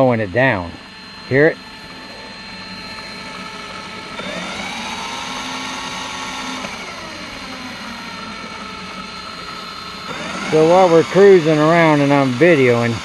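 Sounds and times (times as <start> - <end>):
electric drill whirring: 0.0 - 13.0.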